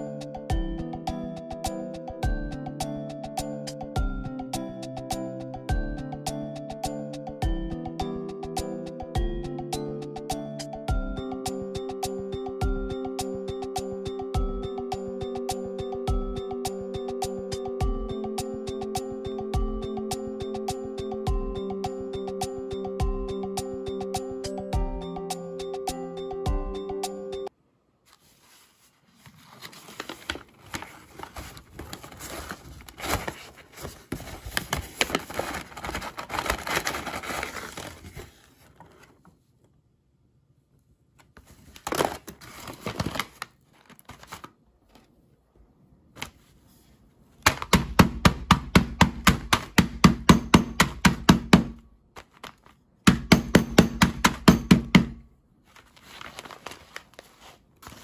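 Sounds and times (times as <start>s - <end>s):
paper bag crinkling: 28.2s - 39.1s, 41.7s - 44.6s, 55.7s - 58.0s.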